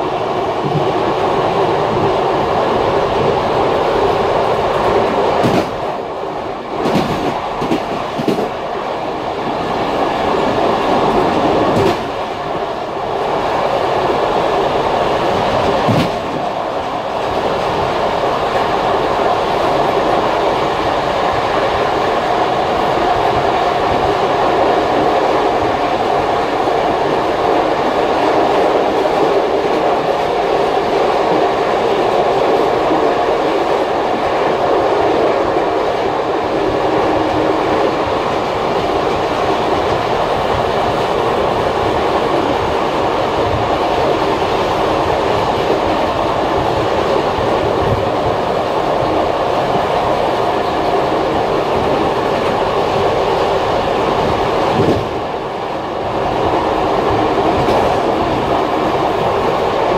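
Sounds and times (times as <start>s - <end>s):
train wheels rumbling on rails: 0.0s - 59.9s
sharp track clacks: 4.8s - 5.9s, 6.8s - 8.6s, 11.0s - 12.2s, 15.4s - 16.5s.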